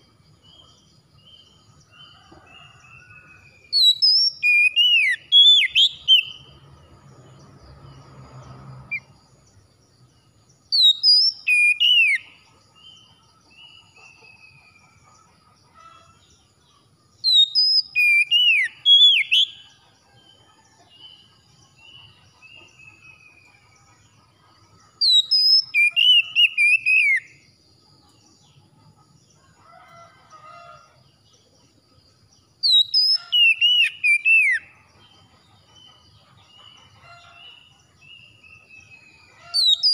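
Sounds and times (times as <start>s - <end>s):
bird singing whistles: 3.7s - 6.4s, 10.7s - 12.3s, 17.2s - 19.6s, 25.0s - 27.3s, 32.6s - 34.6s.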